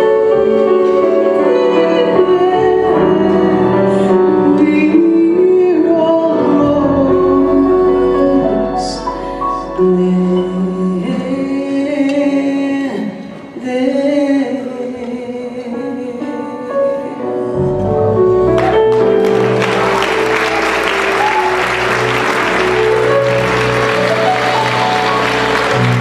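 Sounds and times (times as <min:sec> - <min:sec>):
woman singing: 0:00.0 - 0:17.6
jazz band playing: 0:17.6 - 0:26.0
audience applause: 0:18.6 - 0:26.0.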